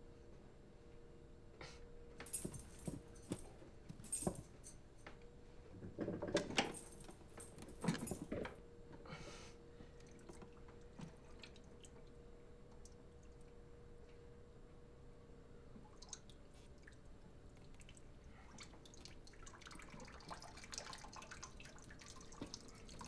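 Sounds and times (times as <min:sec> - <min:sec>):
faint steady hum: 0:00.0 - 0:23.0
metal parts clinking: 0:02.3 - 0:03.4, 0:06.4 - 0:08.4.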